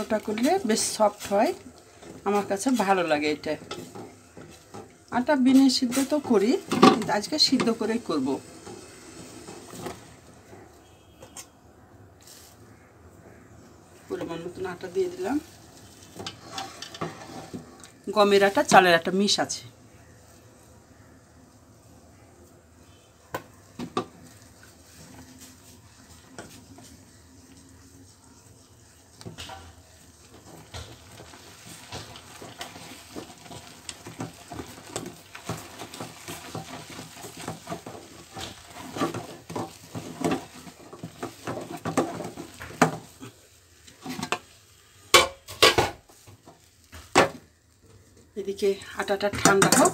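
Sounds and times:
wooden spoon scraping metal pot: 0.0 - 11.5, 14.0 - 18.8, 23.8 - 47.4.

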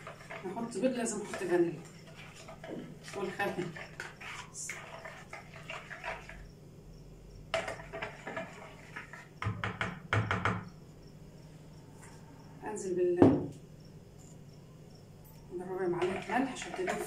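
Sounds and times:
spoon scraping plastic bowl: 0.0 - 6.5, 7.5 - 9.6, 15.6 - 17.0.

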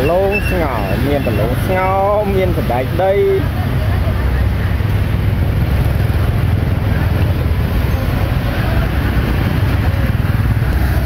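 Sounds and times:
faint voices: 0.0 - 5.2.

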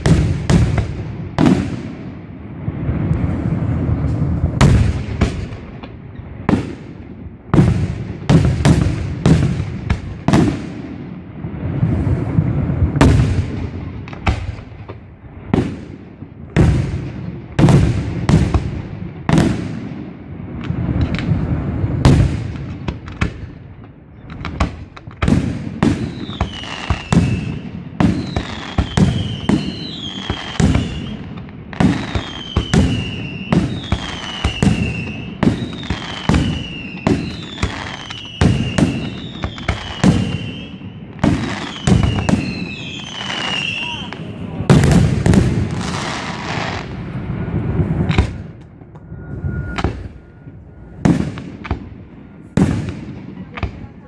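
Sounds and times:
falling firework whistle: 25.9 - 52.9.

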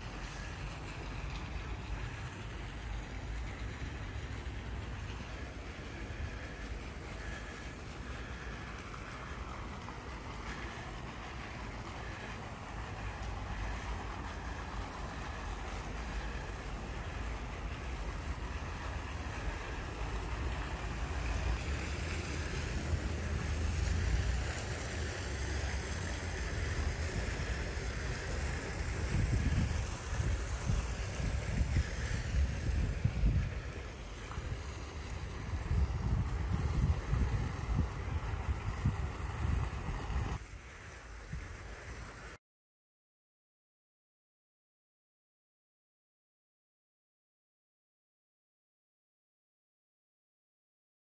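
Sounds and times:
fountain water splashing: 0.0 - 42.4
wind rumbling on microphone: 0.1 - 40.4.

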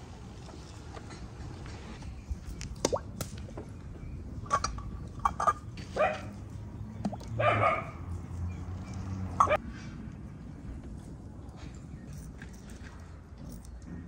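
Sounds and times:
dog barking: 6.0 - 6.3, 7.4 - 8.0.

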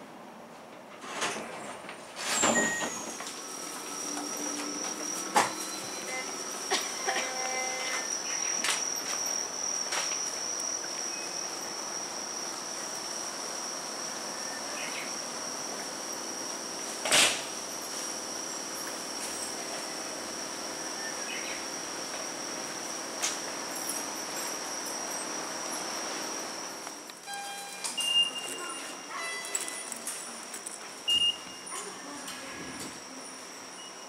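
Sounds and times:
insects trilling: 4.0 - 26.8.

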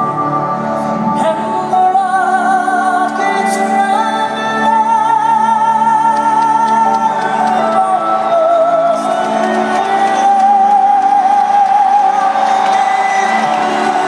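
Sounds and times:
amplified singing in arena: 0.0 - 14.0
crowd whooping and shouting: 7.4 - 14.0.

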